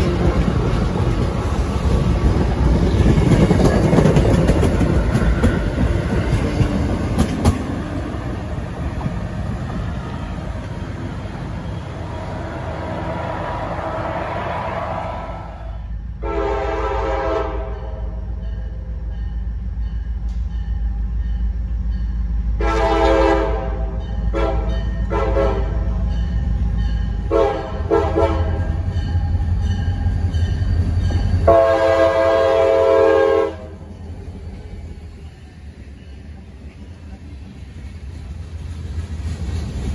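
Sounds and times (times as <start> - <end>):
commuter train departing: 0.0 - 39.9
diesel locomotive rumble: 0.0 - 39.9
train air horn blasts: 12.0 - 18.2, 22.6 - 25.9, 27.3 - 28.6, 31.4 - 33.8.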